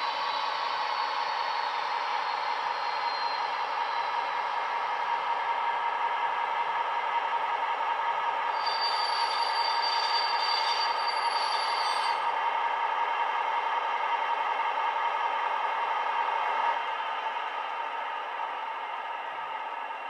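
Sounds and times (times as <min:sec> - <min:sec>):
high brake squeal: 0:00.0 - 0:04.3, 0:08.5 - 0:12.3.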